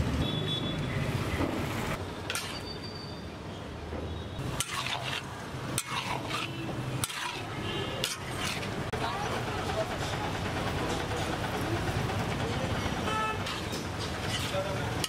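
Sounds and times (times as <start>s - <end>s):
spatula scraping wok: 2.3s - 2.8s, 4.4s - 9.2s, 13.4s - 15.0s
food sizzling: 4.4s - 8.9s.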